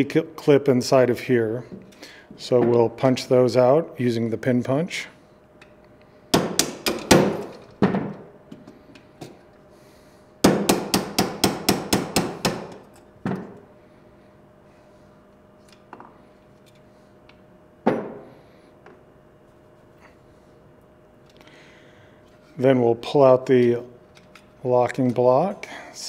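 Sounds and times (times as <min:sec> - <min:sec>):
hammer tapping a pin punch: 0:06.3 - 0:07.4, 0:10.4 - 0:12.8.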